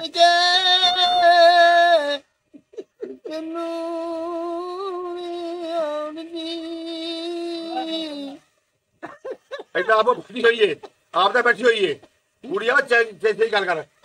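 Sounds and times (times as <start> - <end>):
man singing unaccompanied: 0.0 - 8.7.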